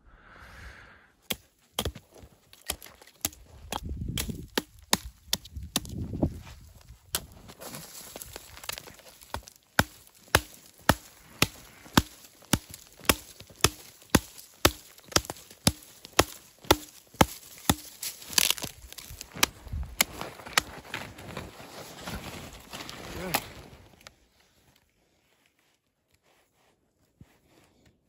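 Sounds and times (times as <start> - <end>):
hatchet chopping tree trunk: 1.3 - 6.1, 8.1 - 20.7.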